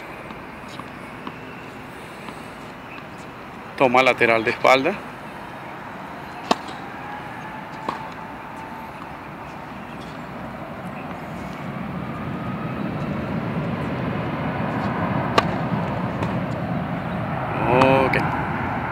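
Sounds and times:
aircraft rumble: 0.0 - 18.9
tennis racket striking ball: 6.0 - 10.3, 14.8 - 16.5.

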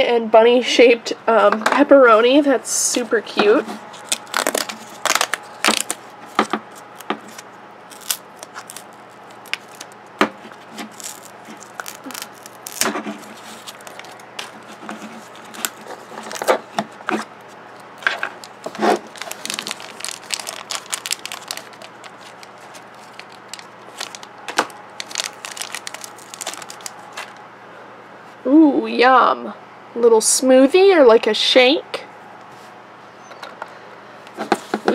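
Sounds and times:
plastic packaging crinkling and tearing: 3.9 - 27.4.

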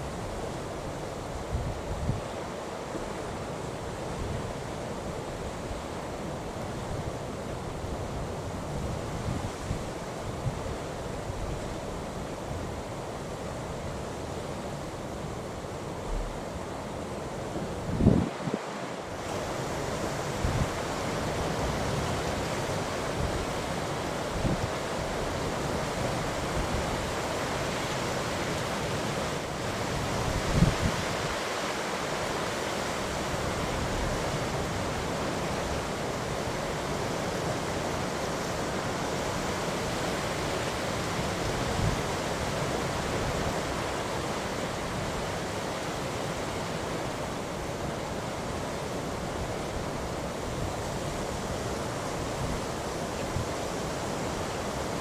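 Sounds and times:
wind: 0.0 - 55.0
wind gusts thumping microphone: 17.5 - 19.5, 30.0 - 31.4.

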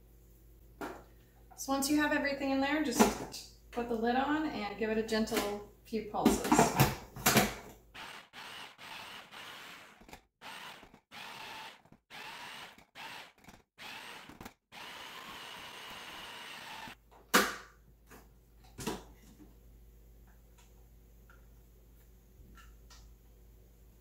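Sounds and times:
food processor motor whining: 7.9 - 17.0.

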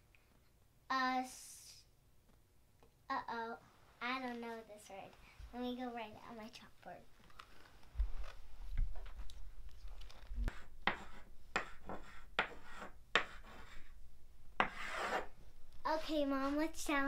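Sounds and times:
chalk scratching on chalkboard: 10.4 - 14.0, 14.6 - 15.3.

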